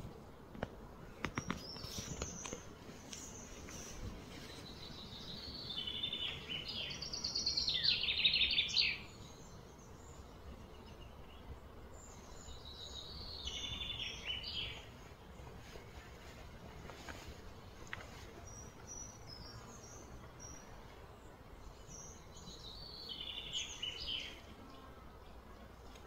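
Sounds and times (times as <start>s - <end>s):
faint low background noise: 0.0s - 26.0s.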